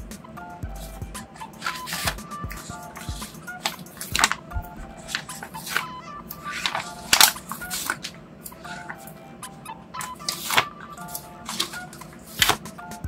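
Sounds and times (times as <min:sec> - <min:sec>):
faint background music: 0:00.0 - 0:13.0
sticker paper rustling and peeling: 0:01.6 - 0:09.1, 0:10.2 - 0:12.7.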